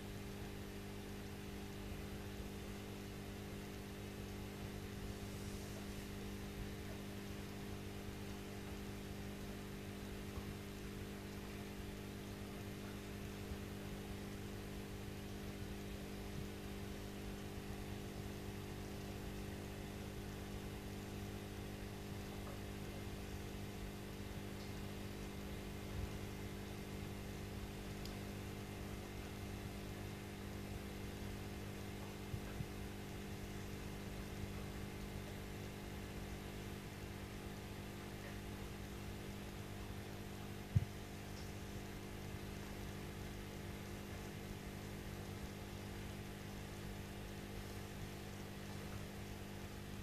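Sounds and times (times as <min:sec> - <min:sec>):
aquarium pump humming: 0:00.0 - 0:50.0
faint hiss: 0:04.5 - 0:14.8.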